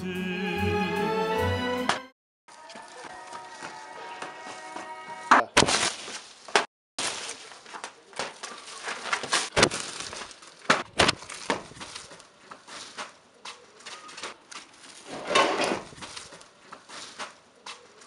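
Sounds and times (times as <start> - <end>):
kite rustling and crackling: 2.5 - 4.8, 5.8 - 18.0.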